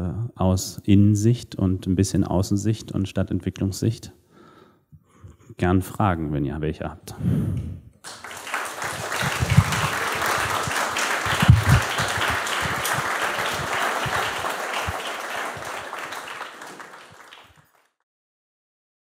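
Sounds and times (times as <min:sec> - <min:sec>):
audience applauding: 0:08.0 - 0:17.9.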